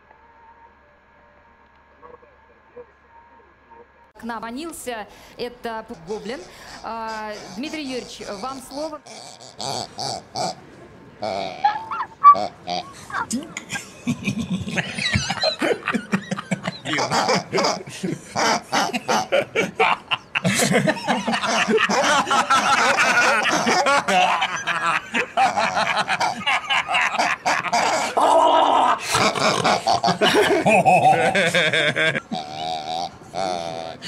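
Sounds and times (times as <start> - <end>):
man laughing loudly: 13.7 - 32.8.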